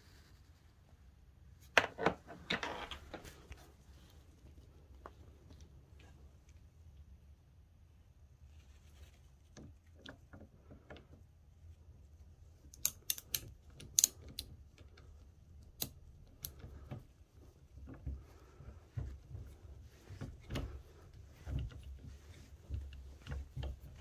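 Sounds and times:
hand tool metallic clicks: 0:12.7 - 0:14.4.

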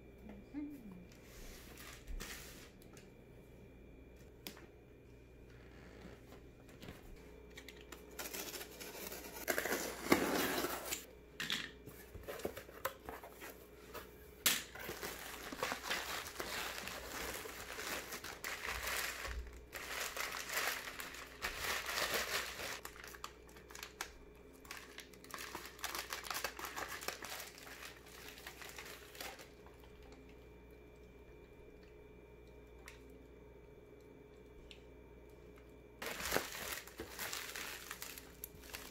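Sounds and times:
plastic packaging crinkling: 0:14.7 - 0:30.3, 0:36.0 - 0:38.9.

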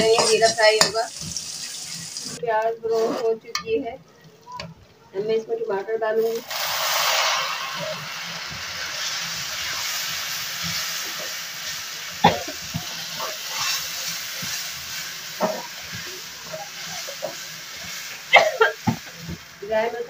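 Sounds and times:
metal spoon scraping pan: 0:00.0 - 0:01.8, 0:12.8 - 0:18.1
food sizzling in hot oil: 0:00.0 - 0:03.2, 0:06.1 - 0:20.0.

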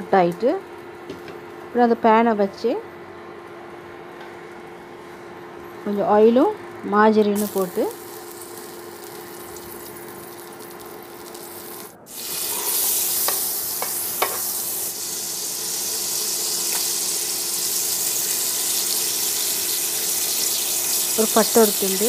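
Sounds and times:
low cooker hum: 0:00.0 - 0:22.0
oil sizzling in a pot: 0:07.4 - 0:22.0.

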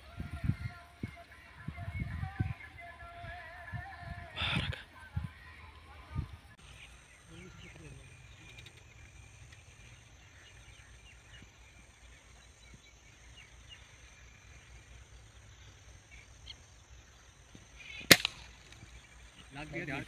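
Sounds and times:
faint outdoor background: 0:00.0 - 0:20.0
air rifle shot: 0:18.0 - 0:19.0.

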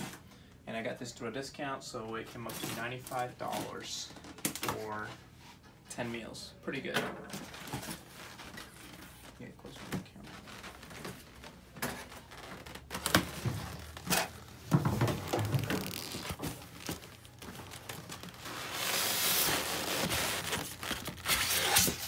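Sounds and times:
cardboard box crinkling: 0:12.3 - 0:22.0.

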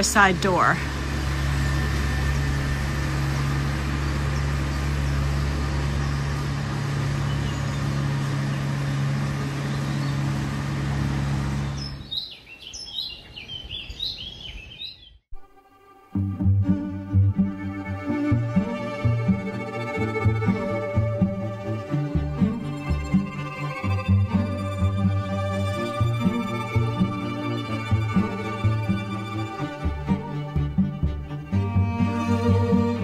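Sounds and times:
low motor hum: 0:00.0 - 0:12.2, 0:16.1 - 0:33.0
birds chirping: 0:02.3 - 0:10.5, 0:11.6 - 0:15.2.

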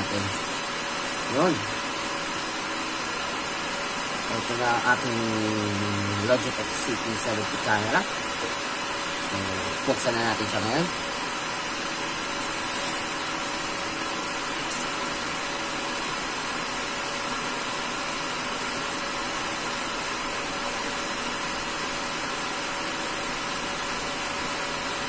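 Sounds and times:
motor or fan humming: 0:00.0 - 0:25.0.

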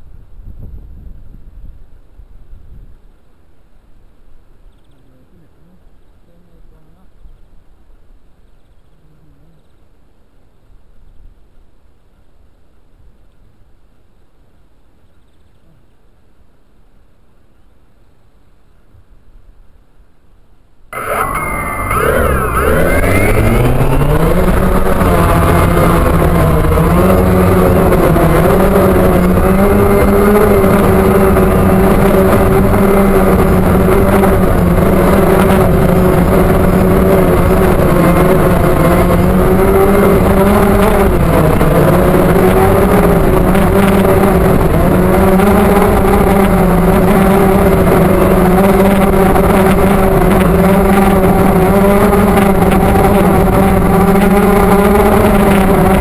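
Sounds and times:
drone motors and propellers: 0:21.0 - 0:56.0.

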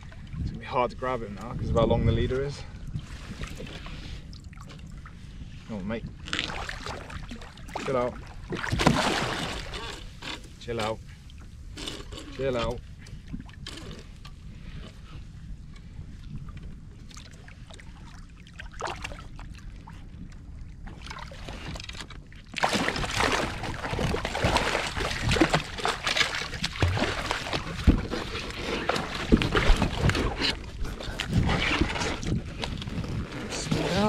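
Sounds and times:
water splashing against a kayak: 0:00.0 - 0:34.0
shark thrashing at the surface: 0:08.6 - 0:09.8, 0:22.6 - 0:30.4.

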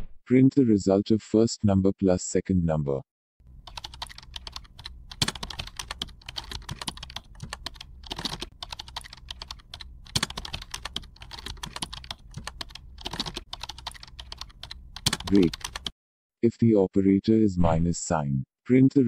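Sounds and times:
fast typing on keyboard: 0:03.5 - 0:15.9.

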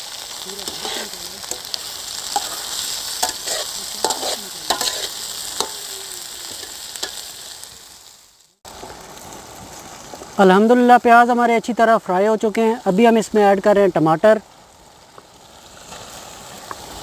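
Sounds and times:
food sizzling in hot oil: 0:00.0 - 0:17.0
metal spatula scraping a pan: 0:00.6 - 0:07.4.

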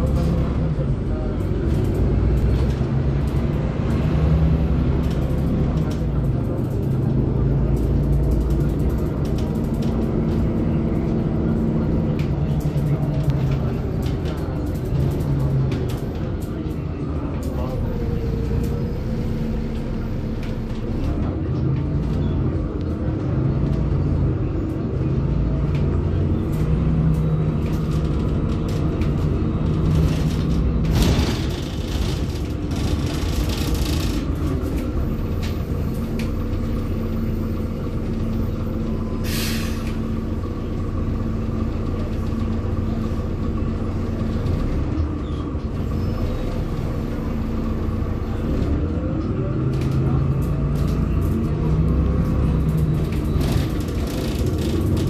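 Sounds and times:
bus diesel engine running: 0:00.0 - 0:55.0
air brake hiss: 0:39.2 - 0:39.9.

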